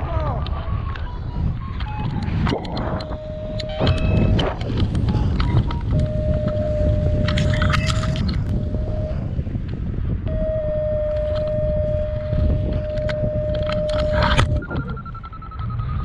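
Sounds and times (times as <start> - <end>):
wind rushing over microphone: 0.0 - 16.0
fast high-pitched beeping: 1.9 - 4.8, 10.3 - 16.0
steady low alarm tone: 1.9 - 16.0.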